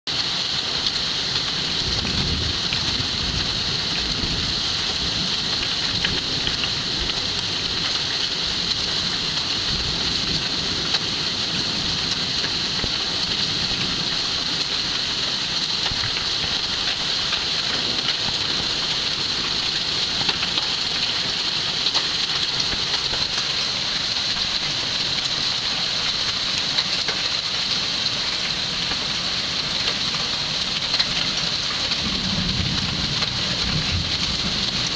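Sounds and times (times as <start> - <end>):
hailstones ticking: 0.1 - 34.9
heavy rain hissing: 0.1 - 34.9
wind gusts rumbling: 1.7 - 12.1.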